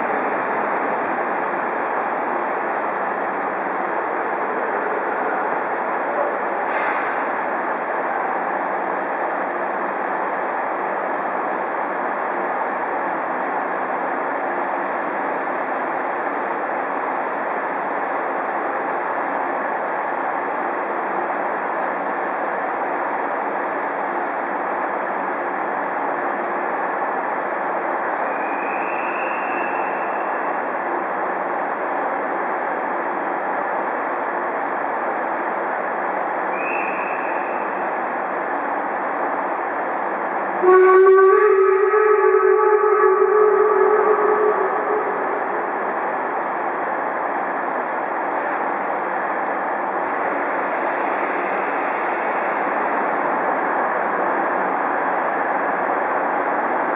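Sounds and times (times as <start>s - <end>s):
steam locomotive hissing: 3.6s - 9.9s
high steam whistle: 28.2s - 30.7s, 36.5s - 37.9s, 40.6s - 46.3s.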